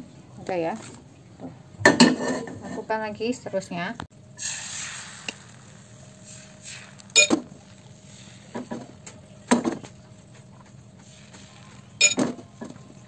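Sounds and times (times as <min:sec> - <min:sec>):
cookware clinking and knocking: 0:12.0 - 0:12.4.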